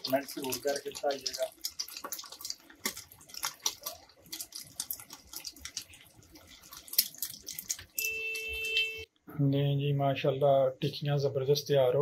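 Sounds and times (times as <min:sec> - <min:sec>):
patties sizzling in hot oil: 0:00.0 - 0:09.0
oil crackling and popping: 0:00.0 - 0:09.1.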